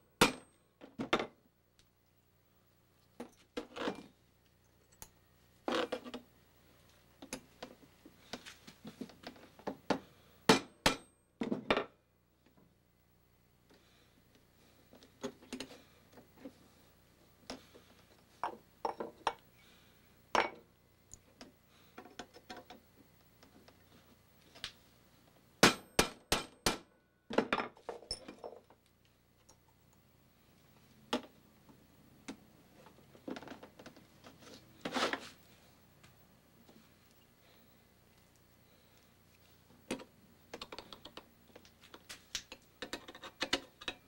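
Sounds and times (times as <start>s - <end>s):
small metal clicks of tools: 4.4s - 5.2s.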